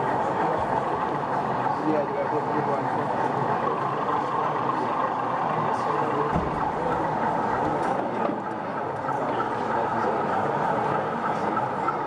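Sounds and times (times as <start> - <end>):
chatter of many people: 0.0 - 12.0
short low thump: 6.3 - 6.8.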